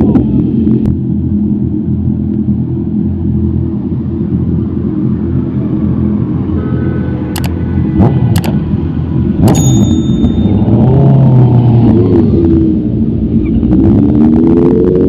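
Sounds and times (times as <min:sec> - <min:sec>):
sharp clicks: 0:07.3 - 0:07.6, 0:08.3 - 0:08.6.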